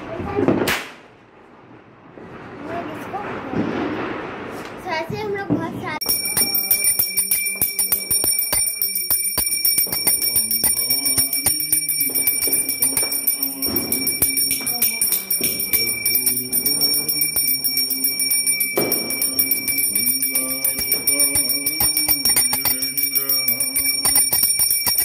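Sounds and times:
brass hand bell ringing rapidly: 6.0 - 25.0.

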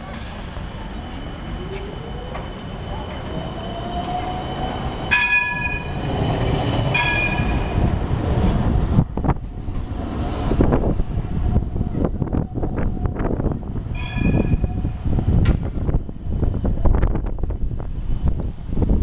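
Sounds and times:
tram bell ringing: 0.0 - 8.1, 13.8 - 15.2
tram motor whine: 0.0 - 18.9
tram rumbling on rails: 0.0 - 19.0.

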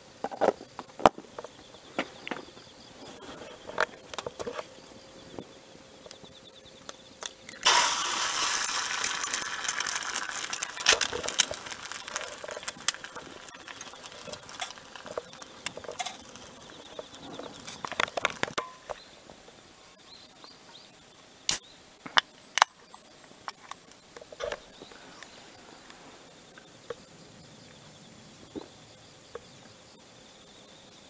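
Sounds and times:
egg crackling in a tin: 7.2 - 18.6.

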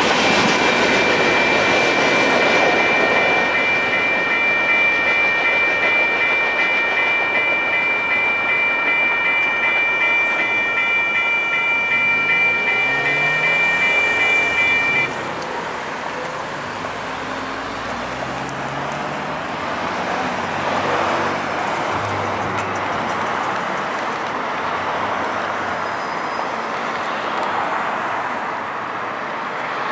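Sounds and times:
cars driving over rail crossing: 0.0 - 26.0.

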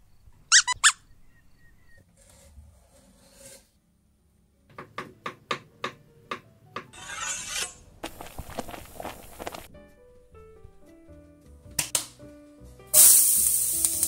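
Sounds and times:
knife scraping mushroom: 2.2 - 3.7, 7.0 - 8.7
short hiss: 12.9 - 14.0.

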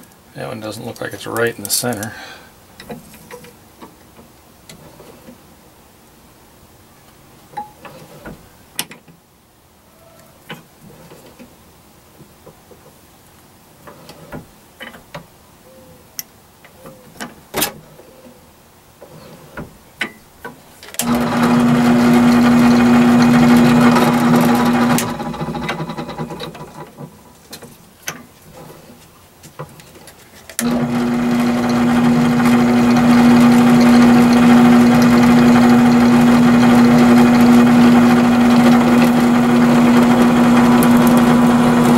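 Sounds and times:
drill press motor humming: 21.0 - 26.9, 30.6 - 41.9.

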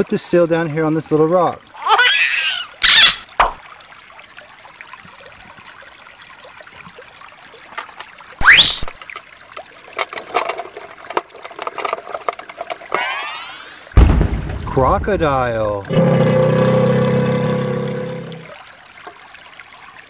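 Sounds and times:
water trickling over stones: 0.0 - 20.0
plastic toys clattering in box: 10.0 - 12.9
loud burst: 13.0 - 15.4.

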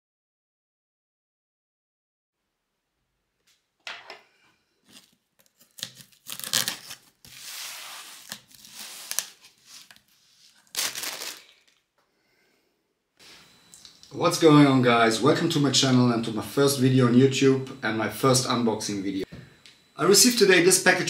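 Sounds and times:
plastic packaging crinkling: 4.8 - 11.9.

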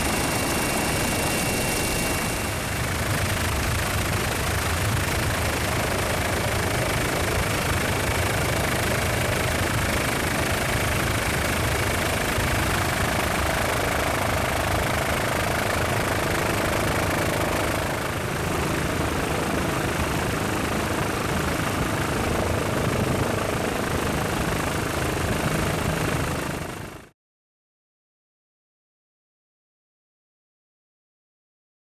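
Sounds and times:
helicopter engine and rotor drone: 0.0 - 27.2.

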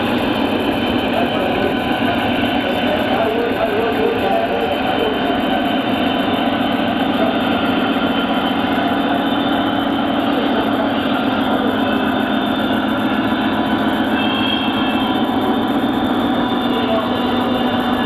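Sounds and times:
model train wheels rumbling: 0.0 - 18.0.

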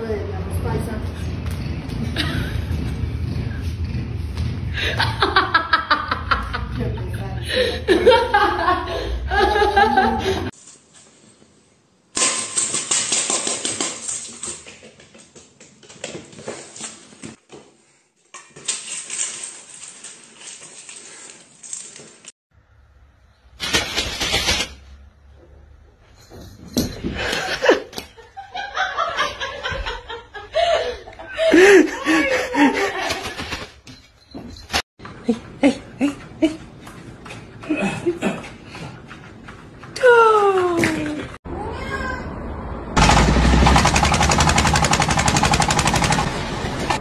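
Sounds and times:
people laughing: 4.8 - 10.5, 27.2 - 33.5.

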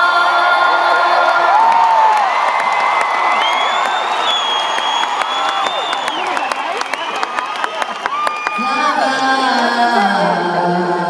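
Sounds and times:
crowd cheering and whooping: 0.0 - 9.7
whistles: 3.3 - 8.4.

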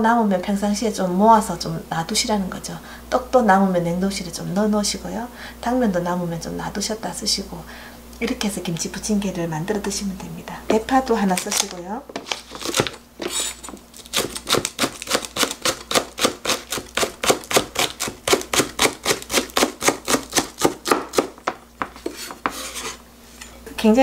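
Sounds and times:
knife chopping on cutting board: 12.6 - 23.0.

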